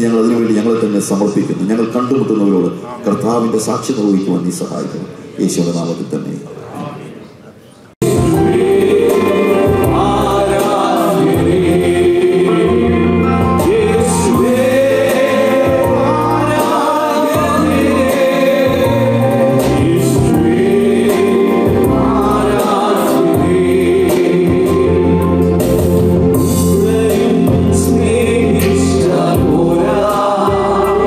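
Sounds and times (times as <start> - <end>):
men singing gospel song: 8.0 - 31.0.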